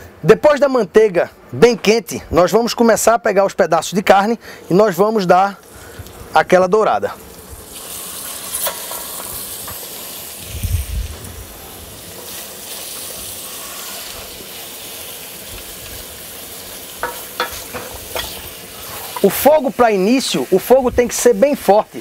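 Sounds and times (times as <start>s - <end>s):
meat sizzling in butter: 5.2s - 22.0s.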